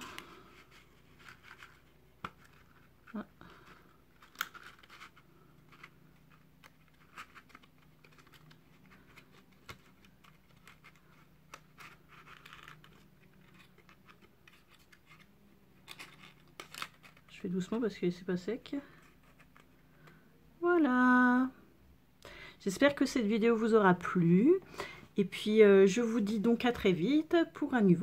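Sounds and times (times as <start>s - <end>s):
cardstock scraping and rustling: 0.0s - 17.4s.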